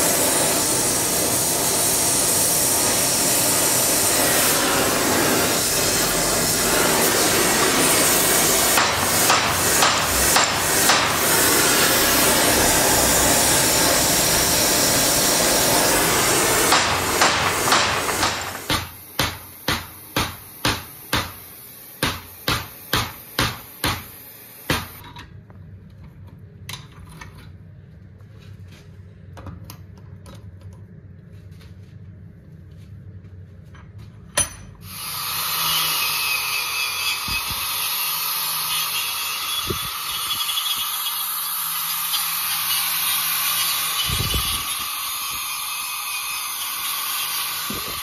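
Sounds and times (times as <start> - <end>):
angle grinder wire brushing steel: 0.0 - 18.7, 35.0 - 48.0
hammer blows on hot metal: 0.0 - 21.4.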